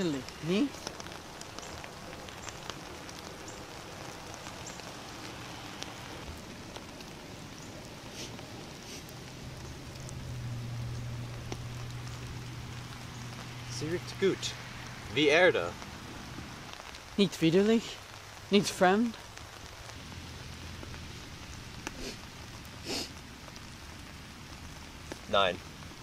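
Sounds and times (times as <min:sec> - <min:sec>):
light rain falling: 0:00.0 - 0:26.0
low steady hum: 0:05.1 - 0:16.6.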